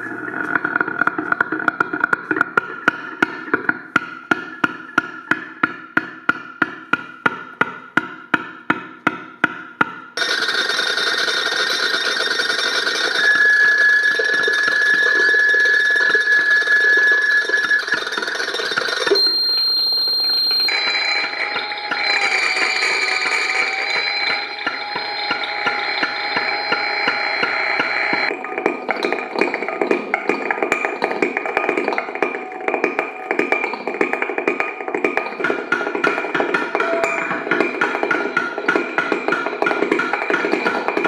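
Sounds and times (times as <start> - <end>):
thin high ringing tone: 10.2 - 29.8, 36.7 - 39.0
buzzing feedback: 10.2 - 30.2, 36.6 - 39.4
droning feedback tone: 10.2 - 41.0
high whistle: 11.3 - 29.3, 36.7 - 38.8.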